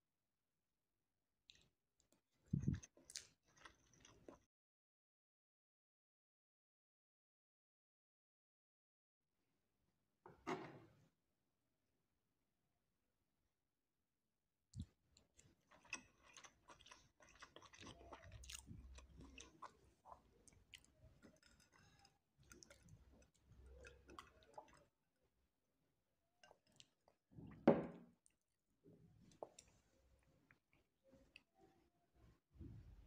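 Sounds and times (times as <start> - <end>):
chewing rice: 1.5 - 4.5, 14.7 - 25.0, 26.4 - 27.2.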